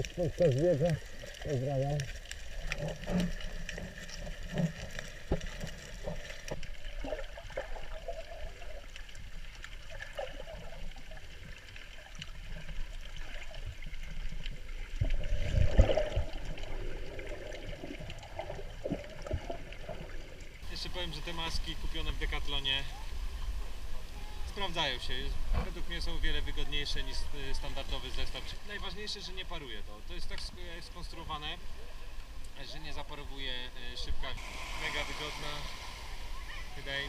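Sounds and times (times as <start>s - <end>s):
underwater swishes and gurgles: 0.0s - 37.0s
low surge of water: 1.0s - 37.0s
faint high whine: 34.2s - 37.0s.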